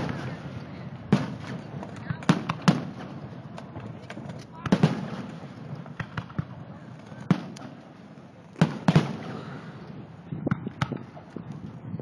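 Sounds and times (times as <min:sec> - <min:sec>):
fireworks bursting in sharp bangs: 0:00.0 - 0:03.8, 0:04.5 - 0:07.9, 0:08.6 - 0:09.6.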